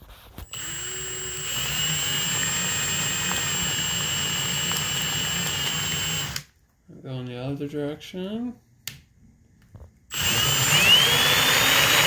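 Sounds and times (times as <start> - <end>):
cordless drill whining: 0.4 - 6.5, 10.1 - 12.0.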